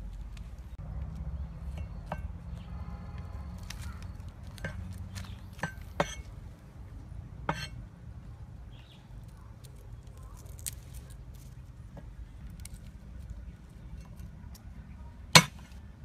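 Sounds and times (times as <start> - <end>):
low steady rumble: 0.0 - 16.0
cleaver chopping on wooden board: 15.4 - 15.7.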